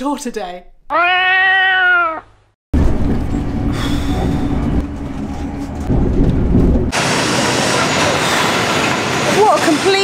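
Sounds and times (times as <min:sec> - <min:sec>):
cat meowing: 0:00.9 - 0:02.3
low hum: 0:02.8 - 0:07.9
train rumbling inside carriage: 0:02.8 - 0:10.0.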